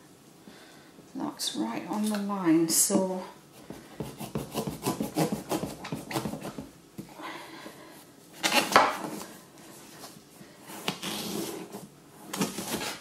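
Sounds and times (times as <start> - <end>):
serrated knife sawing a marrow: 4.1 - 5.8.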